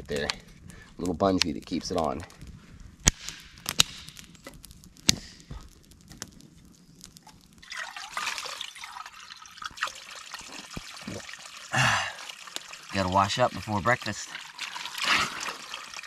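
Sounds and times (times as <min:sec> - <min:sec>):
water trickling into a cup: 0:07.6 - 0:16.0.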